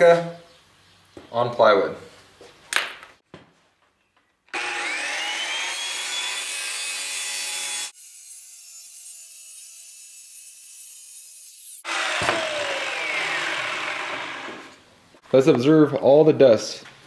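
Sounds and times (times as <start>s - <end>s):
circular saw cutting wood: 4.5s - 14.8s.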